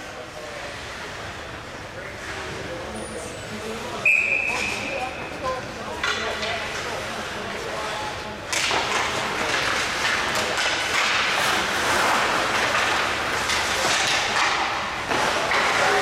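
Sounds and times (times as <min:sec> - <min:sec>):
sticks and puck clacking on boards: 0:04.3 - 0:16.0
skate blades scraping ice: 0:08.5 - 0:16.0.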